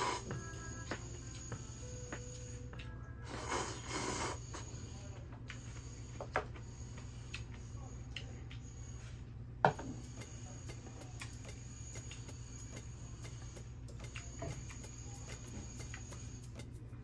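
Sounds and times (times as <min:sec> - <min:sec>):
steady low hum: 0:00.0 - 0:17.0
chopsticks clicking on rice bowl: 0:10.6 - 0:16.9.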